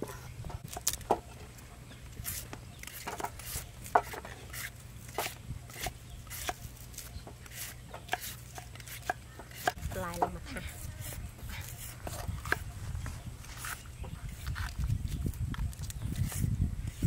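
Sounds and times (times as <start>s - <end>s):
steady low hum: 0.0s - 17.0s
peeler scraping carrot: 2.1s - 12.7s, 13.4s - 17.0s
knife chopping on wooden board: 2.2s - 10.4s.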